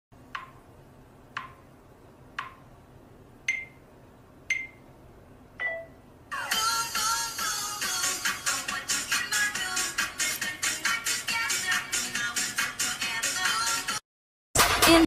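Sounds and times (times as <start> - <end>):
short timer beeps: 3.5 - 3.8, 4.5 - 4.8.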